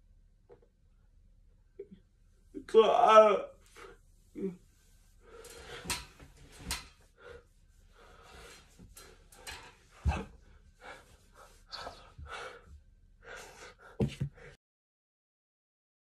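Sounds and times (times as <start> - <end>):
man breathing and gasping: 3.6 - 14.6.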